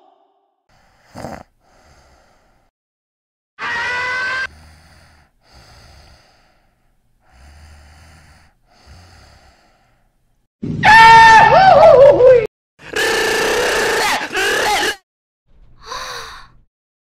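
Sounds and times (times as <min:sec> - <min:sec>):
soft breaths: 0:00.7 - 0:02.7, 0:04.5 - 0:10.5, 0:15.8 - 0:16.6
cartoon strained groan: 0:13.7 - 0:15.0.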